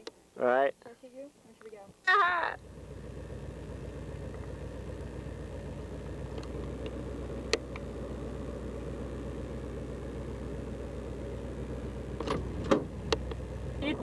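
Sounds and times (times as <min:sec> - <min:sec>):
car engine rumble: 0:01.9 - 0:14.0.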